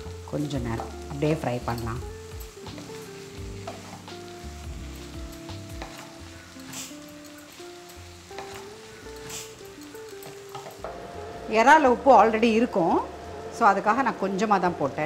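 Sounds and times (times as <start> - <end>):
food sizzling in a pan: 0.0 - 15.0
soft background music: 0.0 - 15.0
wooden spatula scraping a pan: 2.7 - 10.8.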